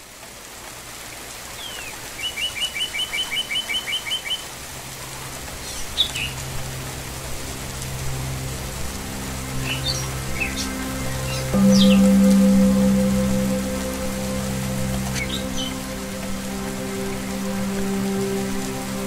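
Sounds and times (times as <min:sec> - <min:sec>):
steady rain: 0:00.0 - 0:19.0
low musical drone: 0:04.8 - 0:19.0
bird chirping: 0:09.6 - 0:17.4.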